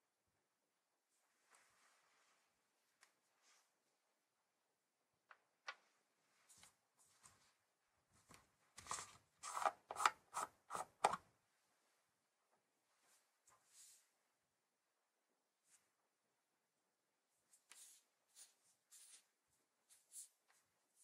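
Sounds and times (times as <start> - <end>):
plastic scraping on plastic: 8.8 - 11.2.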